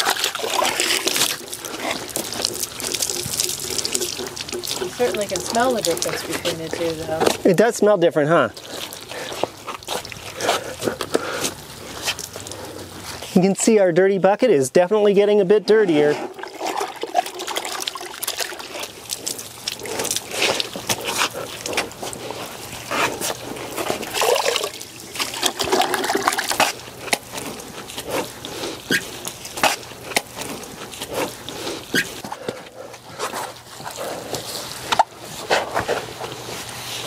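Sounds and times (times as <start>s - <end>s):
mitt sloshing in bucket of water: 0.0s - 7.6s, 15.8s - 37.0s.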